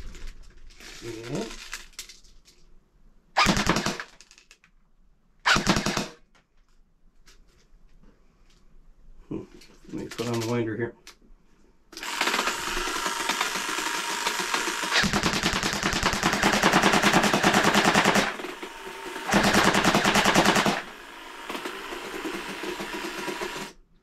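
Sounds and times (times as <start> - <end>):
airsoft gun firing full-auto: 3.4 - 4.1, 5.5 - 6.2, 12.0 - 23.8
electric winder whirr: 12.0 - 23.9.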